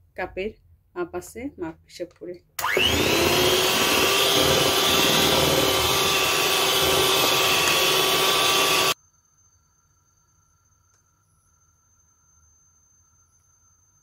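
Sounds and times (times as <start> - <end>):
electric hand mixer whisking batter: 2.6 - 9.0.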